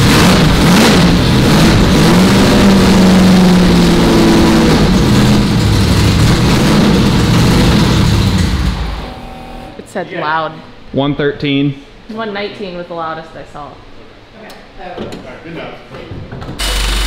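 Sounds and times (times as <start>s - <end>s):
car engine revving: 0.0s - 9.8s, 16.6s - 17.0s.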